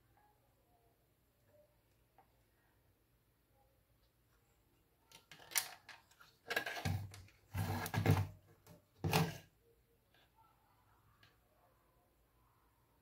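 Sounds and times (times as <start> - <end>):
circuit board scraping and rattling: 6.4 - 8.3.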